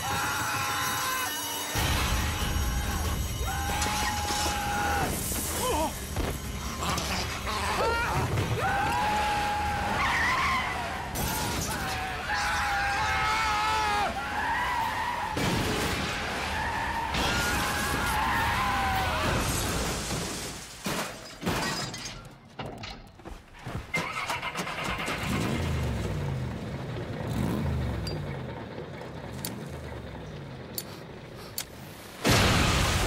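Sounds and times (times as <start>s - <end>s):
glass breaking: 19.4s - 22.5s
low engine rumble: 25.4s - 32.1s.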